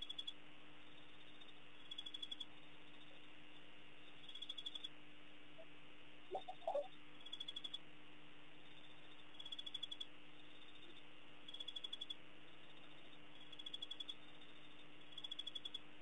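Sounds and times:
faint steady hum: 0:00.0 - 0:16.0
high pulsed chirp: 0:06.3 - 0:06.9.

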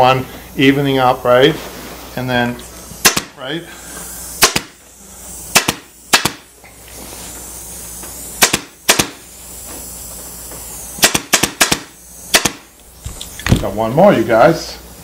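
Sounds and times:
pneumatic staple gun firing: 0:02.9 - 0:03.4, 0:04.2 - 0:04.8, 0:05.4 - 0:06.6, 0:08.0 - 0:09.3, 0:10.7 - 0:13.7.

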